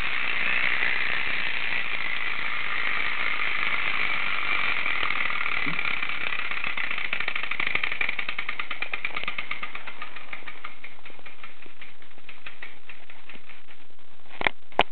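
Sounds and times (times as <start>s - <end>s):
clockwork toy whirring and ticking: 0.0s - 13.8s.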